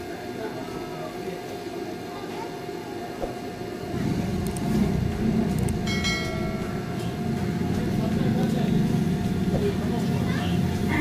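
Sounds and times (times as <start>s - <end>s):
road traffic rumble: 3.5s - 11.0s.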